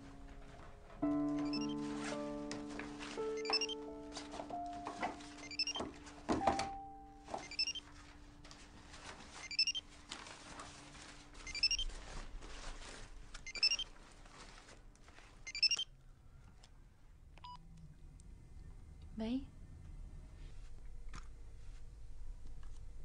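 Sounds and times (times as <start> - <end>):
mobile phone ringtone: 1.4 - 2.1, 3.4 - 3.8, 5.3 - 5.9, 6.5 - 7.8.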